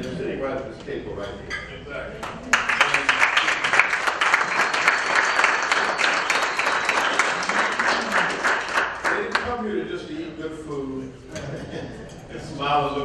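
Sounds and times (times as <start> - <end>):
audience applauding: 2.2 - 9.5.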